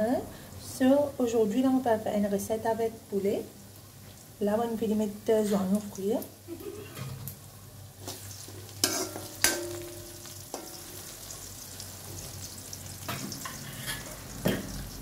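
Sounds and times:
onions sizzling in oil: 0.1 - 15.0
metal spoon clinking on wok: 8.8 - 11.1.

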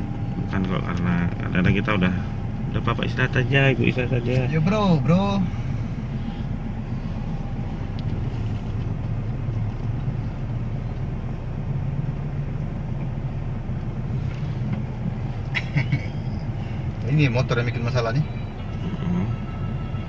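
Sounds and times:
idling engines in traffic: 0.0 - 20.0.

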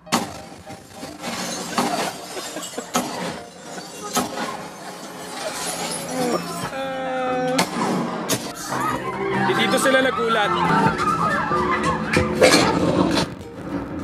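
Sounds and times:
sharp hits: 0.0 - 6.1
crash: 0.0 - 6.7, 7.6 - 8.7
action movie soundtrack: 6.2 - 14.0.

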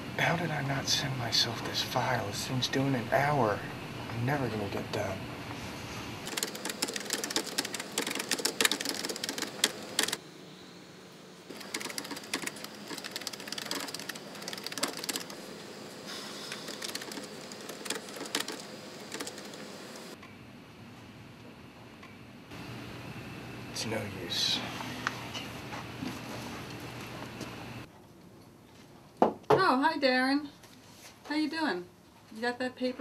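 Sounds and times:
rapid typing on keyboard: 6.3 - 10.2, 11.5 - 15.4, 16.5 - 20.2.

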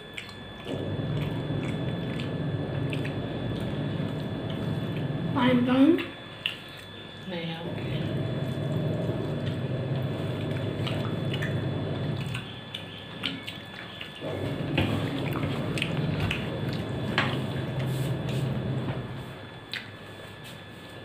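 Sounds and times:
chewing smacks: 0.0 - 5.1, 6.3 - 7.1, 12.2 - 14.3, 15.2 - 16.9, 19.6 - 20.0.

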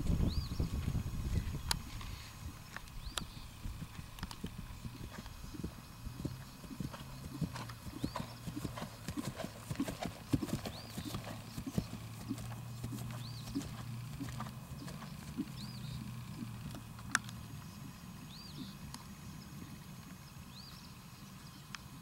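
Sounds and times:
horse trotting on grass: 3.2 - 16.9.

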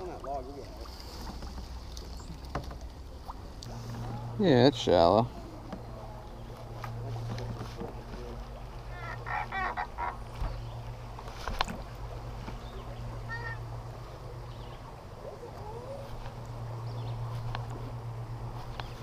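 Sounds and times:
steady low hum: 0.2 - 19.0
bird honking calls: 8.8 - 10.8, 12.7 - 13.8.

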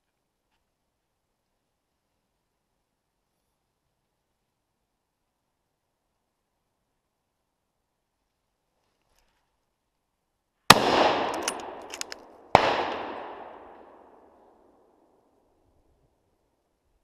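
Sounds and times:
gunshots echoing: 10.7 - 14.4
small clicks: 11.3 - 12.3.

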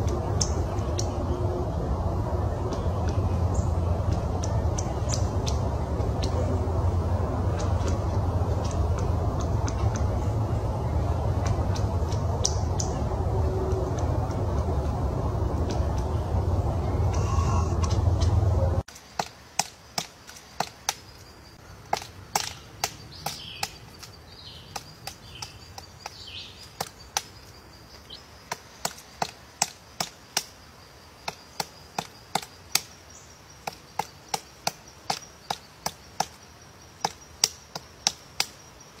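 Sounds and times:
woodpecker chopping wood: 18.9 - 21.2, 21.8 - 30.6, 31.2 - 38.8.

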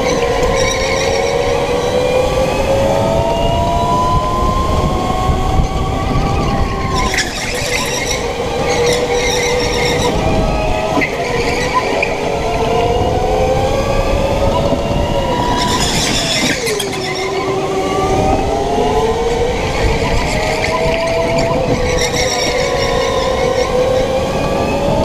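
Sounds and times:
tyre squeal: 0.0 - 1.9, 6.4 - 10.2, 15.4 - 17.6, 20.0 - 24.2.

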